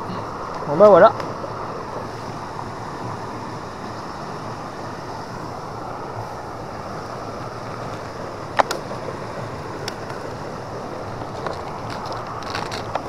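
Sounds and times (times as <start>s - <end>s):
water pouring over weir: 7.2s - 13.0s.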